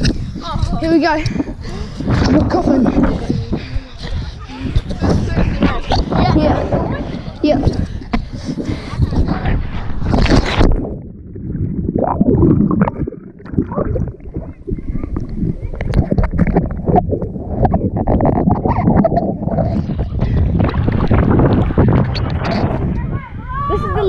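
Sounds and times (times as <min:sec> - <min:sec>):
muffled underwater rushing: 0:00.0 - 0:23.7
bubbling: 0:09.0 - 0:23.0
water splashing: 0:10.0 - 0:23.0.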